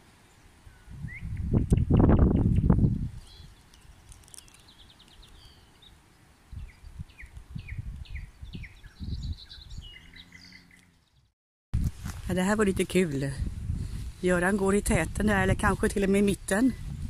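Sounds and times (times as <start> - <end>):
songbird whistled notes: 6.6 - 11.1.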